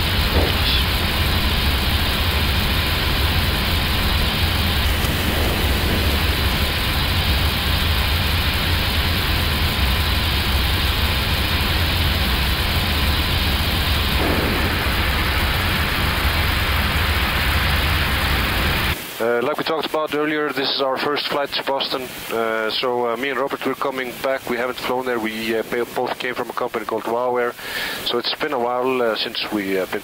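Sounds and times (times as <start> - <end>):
jet engines running: 0.0 - 28.3
airflow rushing over aircraft nose: 2.6 - 9.5.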